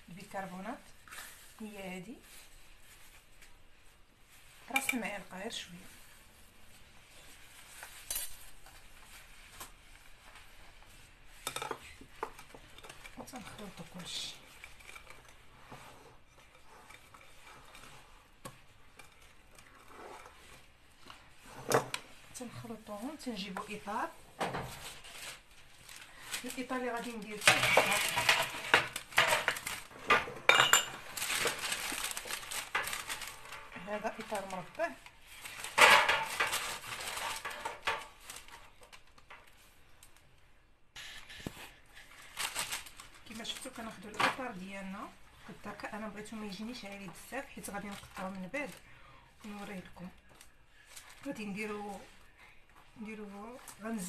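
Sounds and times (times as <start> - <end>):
whisk stirring batter in glass bowl: 9.3 - 21.5
paper rustling: 24.6 - 30.1, 31.0 - 40.2, 41.0 - 44.6
metal clattering and scraping: 27.4 - 33.7.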